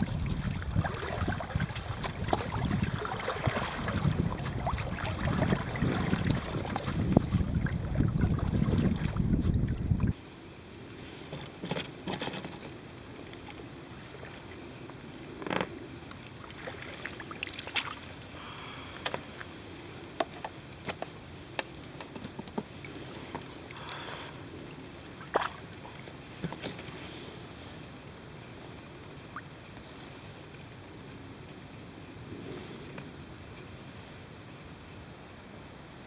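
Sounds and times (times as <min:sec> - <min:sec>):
water sloshing and lapping: 0:00.0 - 0:10.2, 0:10.9 - 0:28.0
wind rumble on microphone: 0:00.0 - 0:17.4, 0:26.3 - 0:36.0
short splashes and knocks: 0:00.4 - 0:09.6, 0:16.5 - 0:18.1, 0:25.2 - 0:26.9.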